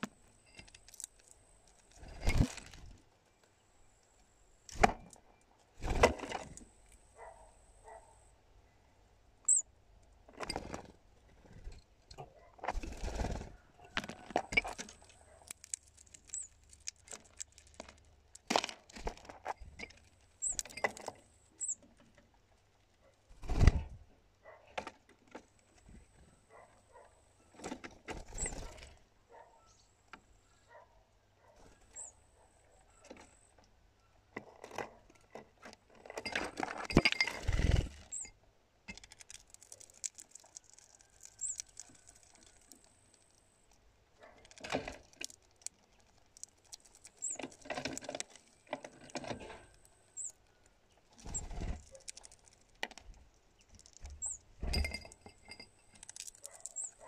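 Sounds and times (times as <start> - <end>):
bird knocking and scrabbling: 10.3 - 22.3, 34.4 - 38.3, 51.2 - 57.0.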